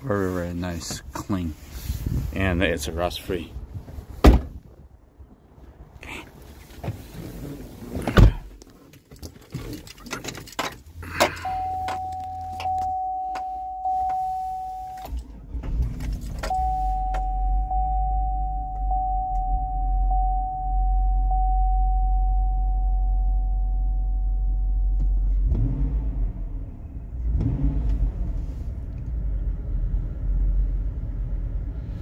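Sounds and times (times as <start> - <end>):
knocks and thumps climbing into car: 3.8 - 4.8, 7.9 - 8.6
low hum: 11.0 - 27.4
electronic warning chime: 11.4 - 15.1, 16.5 - 25.0.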